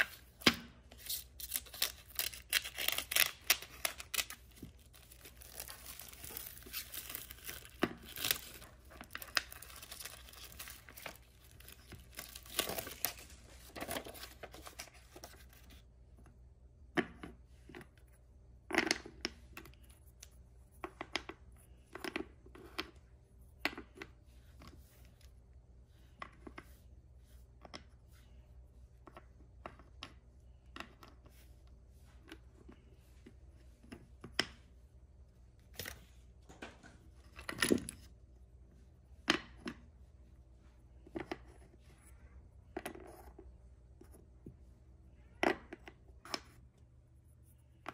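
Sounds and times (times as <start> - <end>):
packaging tearing and crinkling: 1.0 - 14.9.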